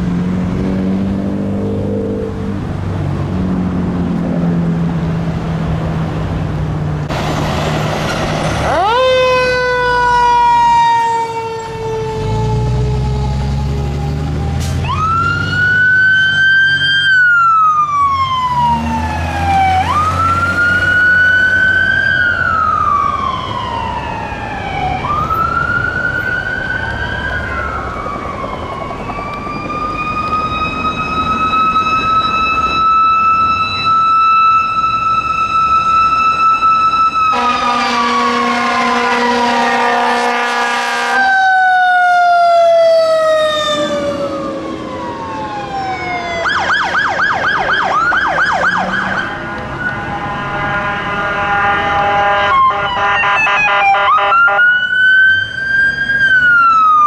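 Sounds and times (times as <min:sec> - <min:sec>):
fire truck sirens wailing: 0:01.5 - 0:57.0
air horn blast: 0:37.3 - 0:41.4, 0:49.2 - 0:54.7
yelping siren bursts: 0:41.3 - 0:50.0.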